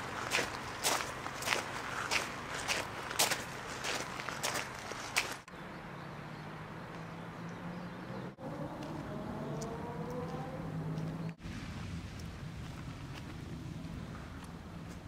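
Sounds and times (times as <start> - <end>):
distant engine drone: 5.6 - 15.0.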